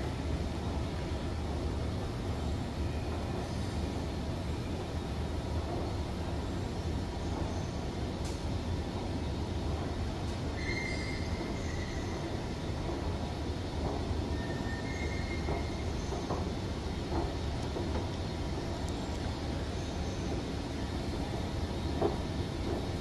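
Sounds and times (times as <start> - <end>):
escalator high squeaks: 10.5 - 12.4, 14.3 - 16.3.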